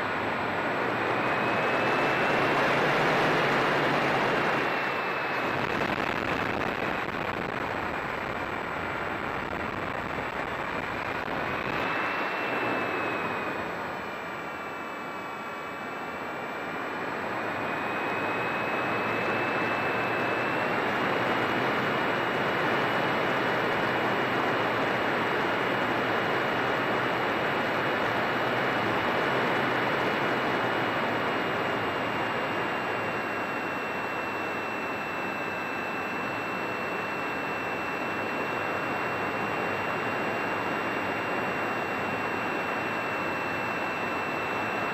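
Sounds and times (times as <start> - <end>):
model airplane motor whine: 0.0 - 6.6, 11.2 - 24.8.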